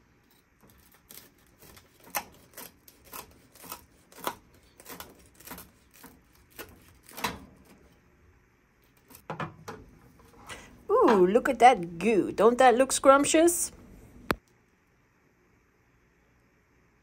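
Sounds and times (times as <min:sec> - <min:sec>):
knife sawing through crunchy toast: 0:00.7 - 0:07.2.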